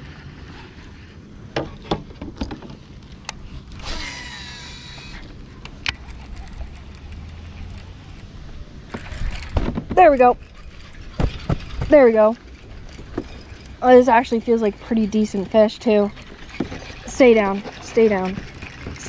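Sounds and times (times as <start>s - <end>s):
reel cranking: 0.0s - 1.3s, 2.7s - 19.0s
reel spool whirring: 0.0s - 19.0s
fishing reel clicks: 3.7s - 8.3s.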